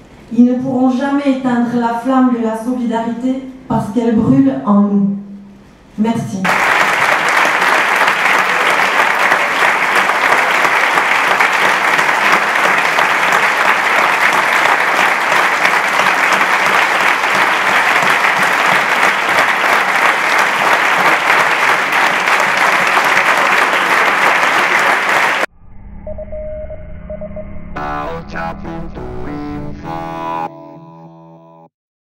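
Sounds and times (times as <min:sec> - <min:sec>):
large audience applauding: 0:06.4 - 0:25.5.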